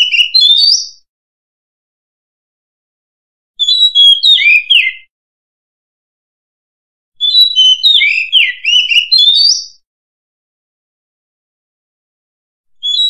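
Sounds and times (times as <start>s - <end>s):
bird singing whistled notes: 0.0s - 1.1s, 3.6s - 5.1s, 7.2s - 9.8s, 12.8s - 13.0s.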